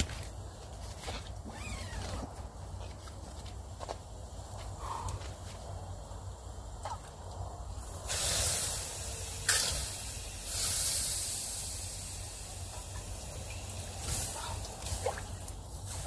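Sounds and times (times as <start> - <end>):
water sizzling on hot stove: 7.8 - 16.0.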